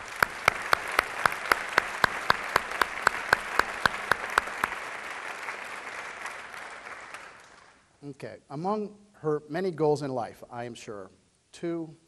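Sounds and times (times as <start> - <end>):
audience applauding: 0.0 - 7.8
sharp nearby claps: 0.0 - 7.8.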